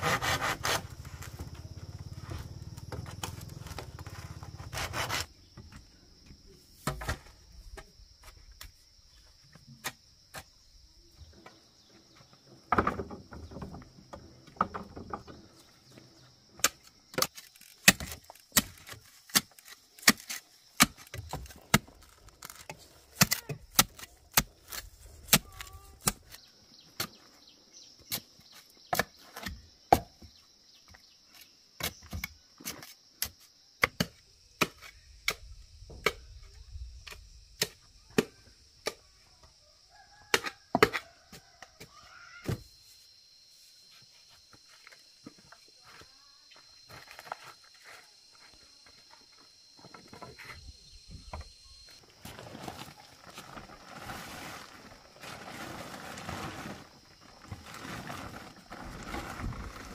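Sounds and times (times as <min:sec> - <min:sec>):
hand saw cutting bamboo: 0:00.0 - 0:00.9, 0:04.5 - 0:05.3
high insect drone: 0:29.6 - 0:59.9.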